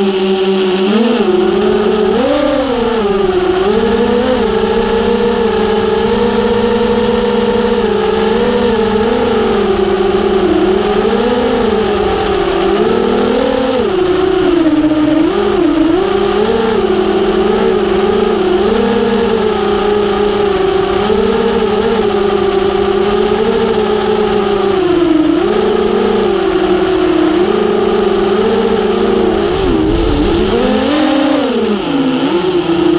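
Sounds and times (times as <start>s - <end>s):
drone motors whining: 0.0s - 32.9s
steady rushing noise: 28.6s - 32.9s.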